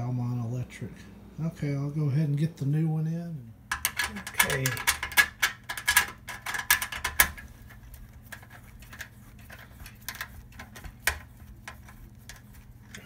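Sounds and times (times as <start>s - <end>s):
metallic clicks and knocks: 3.7s - 13.0s.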